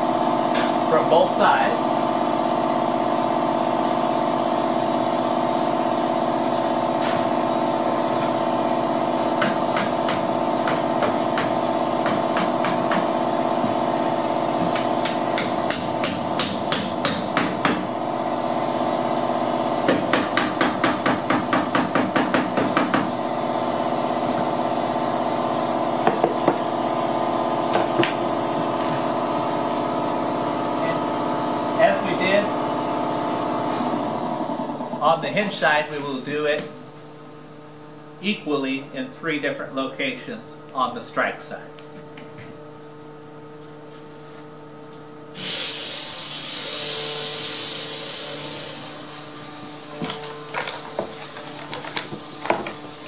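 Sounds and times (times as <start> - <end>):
steady mechanical hum: 0.0 - 53.0
hammer tapping wood: 9.4 - 13.1, 14.6 - 17.8, 19.9 - 23.1.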